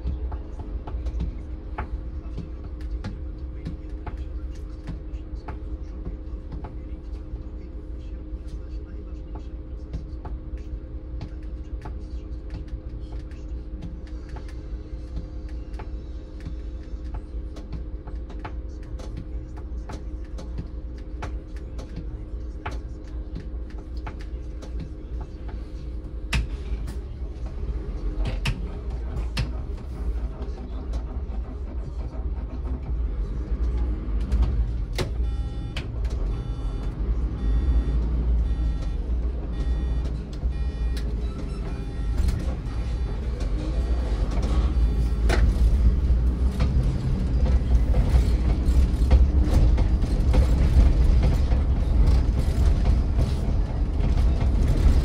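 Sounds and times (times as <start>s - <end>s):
bus engine and road rumble: 0.0s - 55.0s
short beeps: 35.1s - 43.2s.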